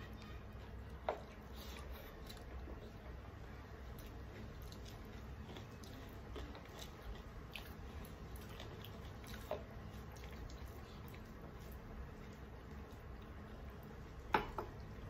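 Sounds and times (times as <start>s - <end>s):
fingers mixing food on plates: 0.0s - 15.0s
low steady hum: 0.0s - 15.0s
soft chewing: 0.0s - 15.0s.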